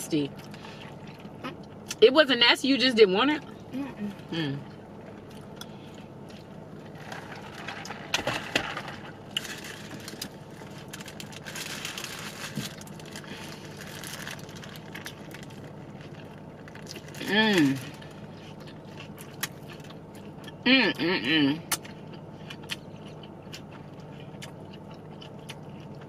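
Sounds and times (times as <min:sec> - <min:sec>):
low steady hum: 0:00.0 - 0:26.0
paper wrapper crinkling: 0:07.0 - 0:18.1
crunchy chewing: 0:09.3 - 0:17.2, 0:17.8 - 0:20.6, 0:21.7 - 0:26.0.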